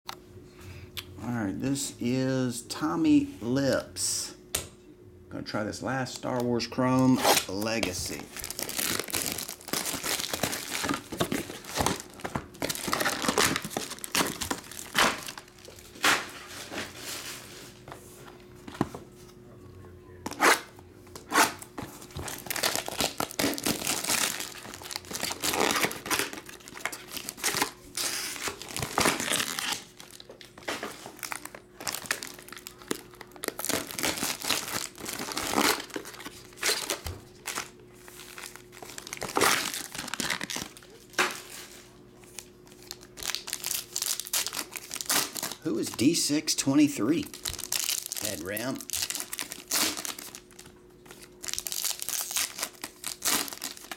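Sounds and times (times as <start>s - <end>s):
foil card packs rustling: 6.5s - 18.9s, 21.2s - 53.9s
plastic shrink-wrap crinkling and tearing: 7.0s - 17.3s, 22.1s - 53.9s.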